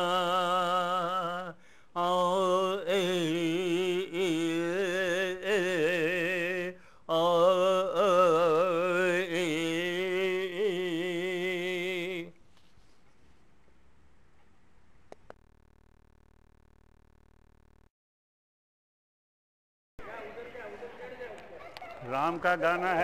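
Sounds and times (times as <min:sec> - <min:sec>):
man singing with vibrato: 0:00.0 - 0:12.4, 0:22.1 - 0:23.0.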